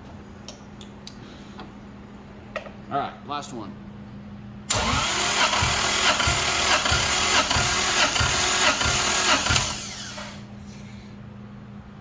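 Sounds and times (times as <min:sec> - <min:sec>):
steady low hum: 0:00.0 - 0:12.0
engine cranking without firing: 0:04.7 - 0:10.4.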